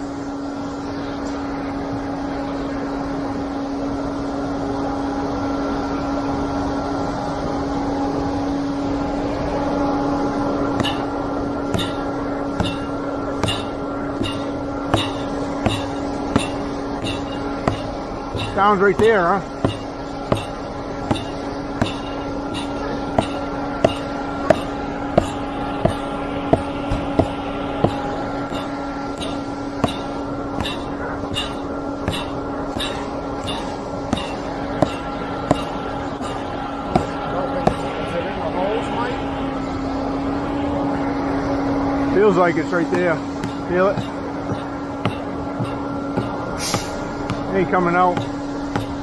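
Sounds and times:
concrete pump running: 0.0 - 49.0
sledgehammer striking metal pipe: 10.7 - 37.9, 42.9 - 47.5, 48.1 - 49.0.

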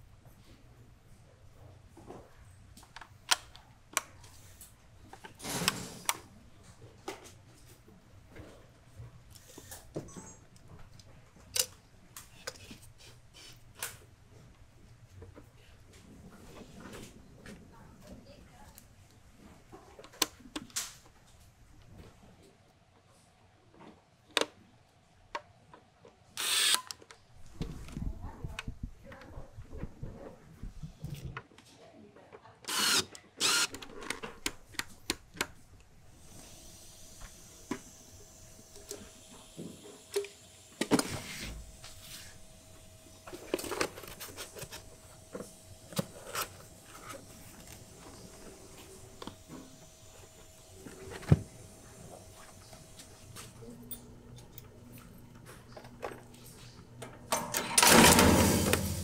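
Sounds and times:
power screwdriver running: 26.4 - 26.9, 32.7 - 33.8.

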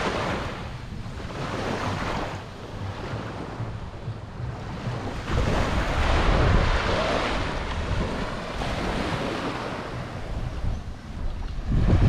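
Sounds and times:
small waves washing on beach: 0.0 - 12.0
wind buffeting microphone: 0.0 - 12.0.

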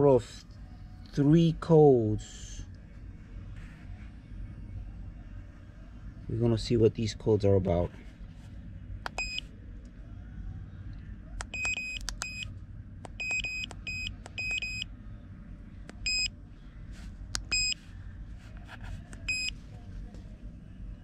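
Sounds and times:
keypad button clicks: 11.4 - 12.4.

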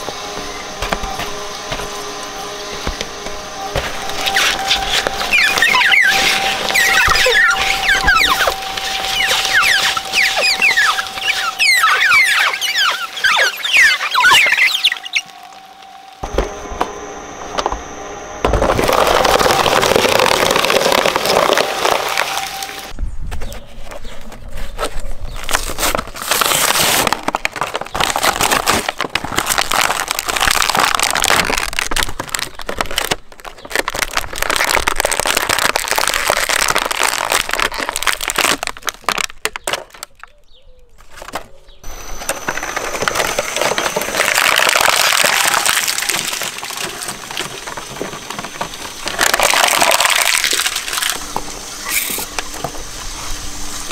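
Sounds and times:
shredder crunching plastic toys: 0.0 - 17.8, 18.4 - 23.0, 24.8 - 40.3, 41.0 - 53.9.

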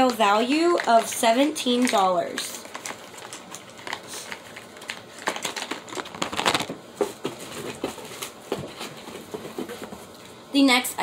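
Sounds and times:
makeup packaging clicks and taps: 0.0 - 6.6.

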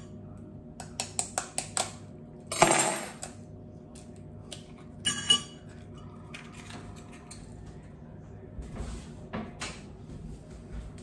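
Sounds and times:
knife tapping egg shell: 0.8 - 2.0.

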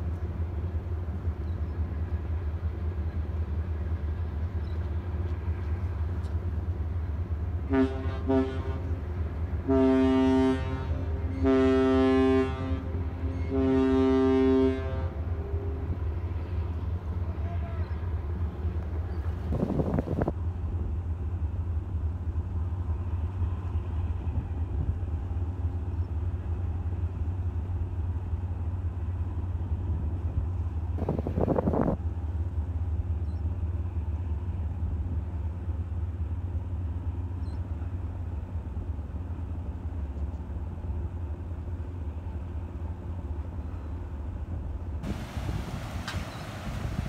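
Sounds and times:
ship engine rumble: 0.0 - 47.0
water rush: 45.0 - 47.0.

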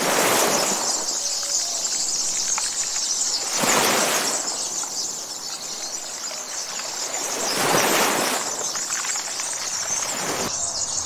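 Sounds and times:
faint bird chirps: 0.0 - 11.0
rushing wind: 3.3 - 11.0.

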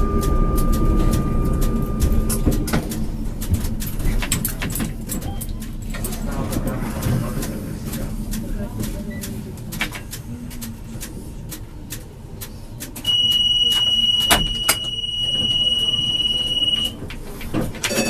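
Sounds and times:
tram door warning beep: 0.0 - 7.3, 13.0 - 18.0
low hum of tram: 0.0 - 18.0
scattered clicks: 0.0 - 18.0.

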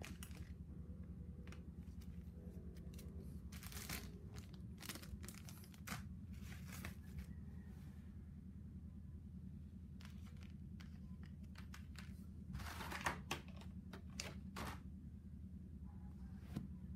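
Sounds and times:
plastic crinkling rustle: 0.0 - 0.6, 1.4 - 7.3
faint low hum: 0.0 - 16.9.

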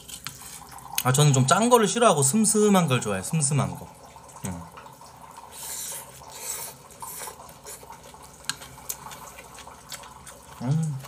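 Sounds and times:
wet chewing: 5.6 - 11.0.

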